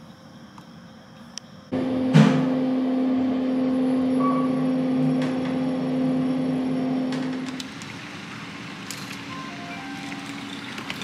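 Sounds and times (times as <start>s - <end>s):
elevator humming: 0.0s - 11.0s
elevator thump: 2.0s - 2.6s.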